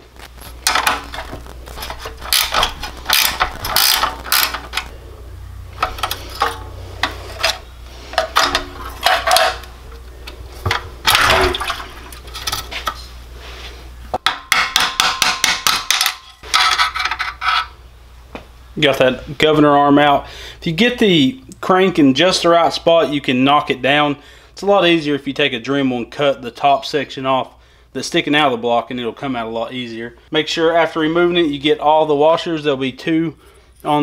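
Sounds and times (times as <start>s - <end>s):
ratcheting wrench clicking: 2.2s - 4.9s
metal clinks and scrapes: 5.8s - 9.7s.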